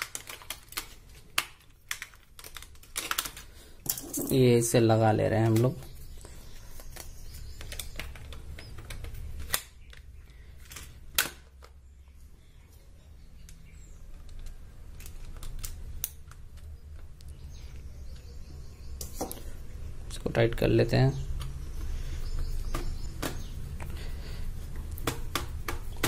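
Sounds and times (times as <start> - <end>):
plastic cover snapping: 0.0 - 4.3.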